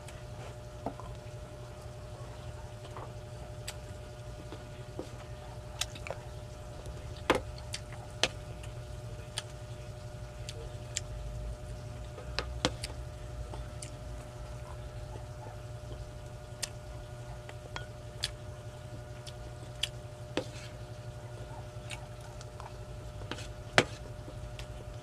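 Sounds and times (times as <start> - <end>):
steady low hum: 0.0 - 25.0
chewing mouth sounds: 3.6 - 9.6, 17.4 - 24.9
wooden spoon scooping rice: 23.2 - 24.1.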